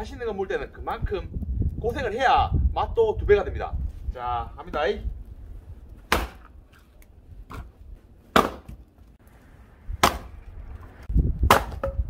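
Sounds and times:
axe chopping firewood: 6.0 - 6.8, 8.3 - 8.9, 10.0 - 10.4, 11.4 - 12.0.

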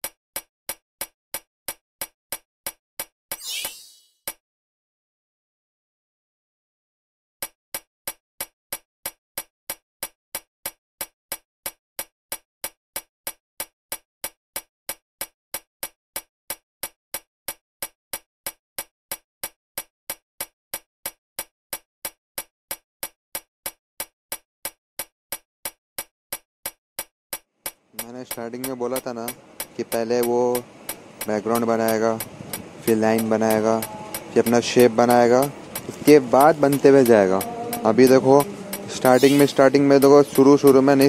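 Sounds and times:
sharp ticks: 12.0 - 41.0.

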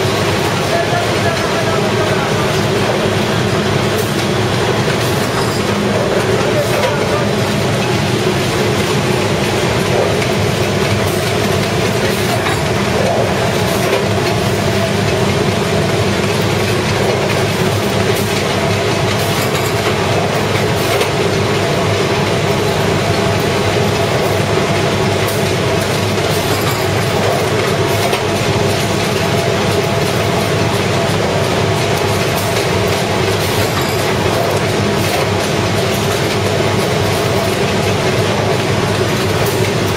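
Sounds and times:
machine running with steady din: 0.0 - 39.9.

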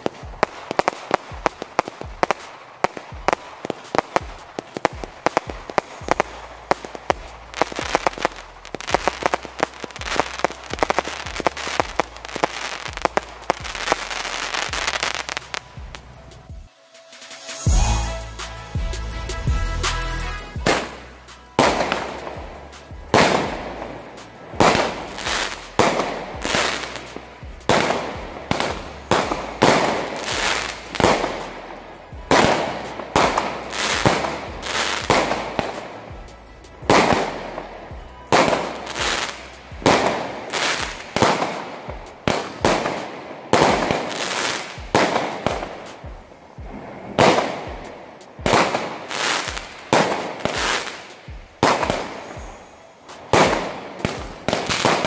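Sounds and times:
firework shots: 0.0 - 17.7, 20.6 - 55.0
firework star bursts: 0.0 - 18.8, 19.4 - 55.0.

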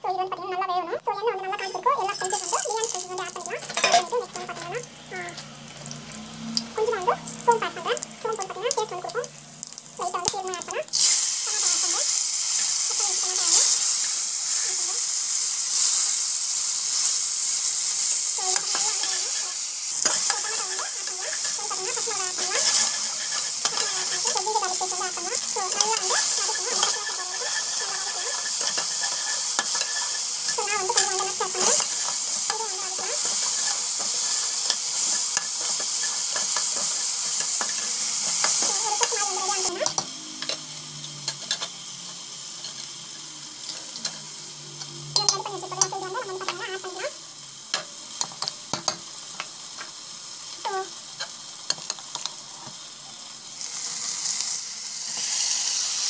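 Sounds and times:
tomatoes sizzling in hot oil: 0.0 - 56.0
spoon stirring against metal pot: 1.2 - 5.4, 18.4 - 41.8, 43.6 - 47.1.

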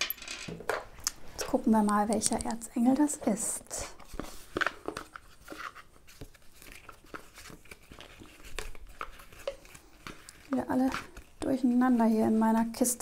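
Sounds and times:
cards clicking and rustling: 4.0 - 11.6.

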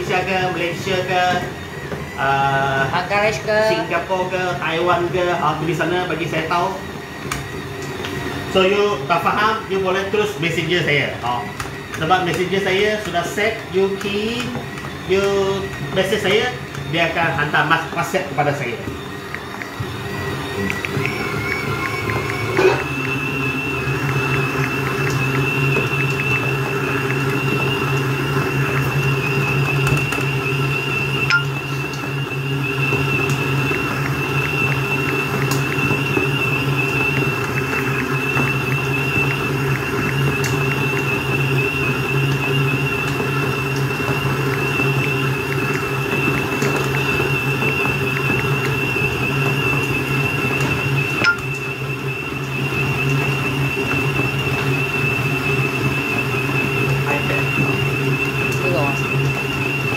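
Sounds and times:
stand mixer motor whining: 0.0 - 59.9.

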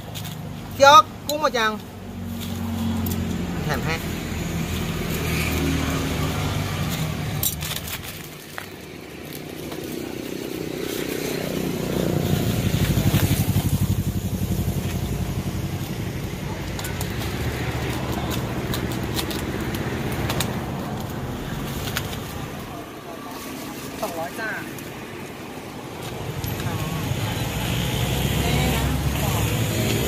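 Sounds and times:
sharp clicks and clatters: 6.8 - 22.6
motorcycle engine running: 8.7 - 22.5.

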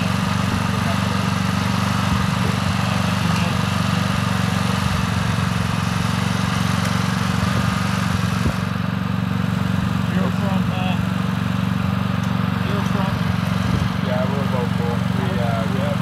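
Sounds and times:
portable generator running: 0.0 - 16.0.

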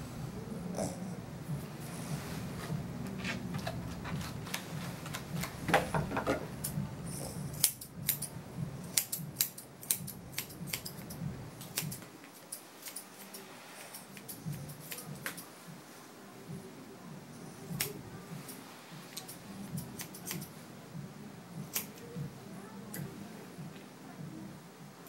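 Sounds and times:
grooming shears snipping fur: 7.5 - 15.5, 17.6 - 20.6.

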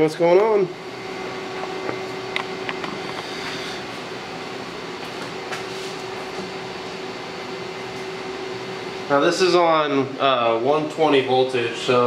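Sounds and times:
fan humming: 0.0 - 12.0.

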